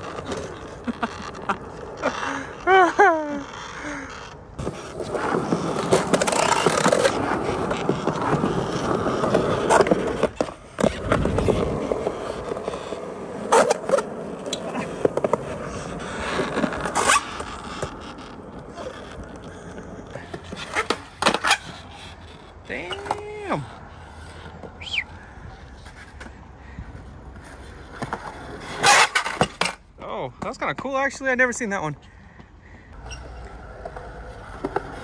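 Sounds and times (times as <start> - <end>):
skateboard wheels rolling on concrete: 0.0 - 35.0
skateboard clacking on ground: 4.6 - 25.0.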